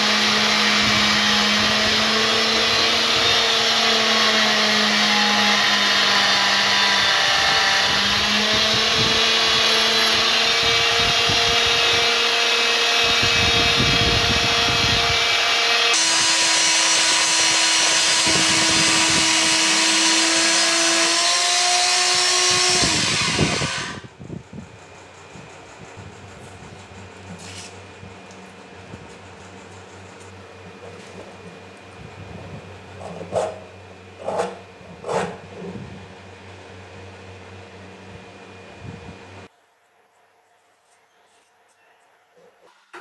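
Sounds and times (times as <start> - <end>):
band saw cutting metal: 0.0 - 24.1, 26.3 - 31.8, 32.5 - 35.9.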